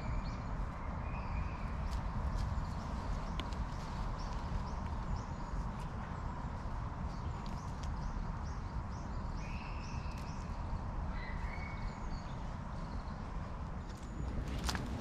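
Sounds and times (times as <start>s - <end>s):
wind rumble: 0.0s - 15.0s
taps and rustles in wet leaves: 1.7s - 6.0s, 13.8s - 15.0s
birds chirping and whistling: 9.0s - 13.2s.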